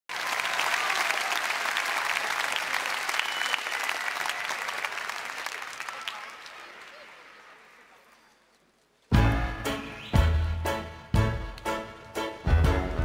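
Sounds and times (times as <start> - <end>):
audience applauding: 0.1 - 8.5.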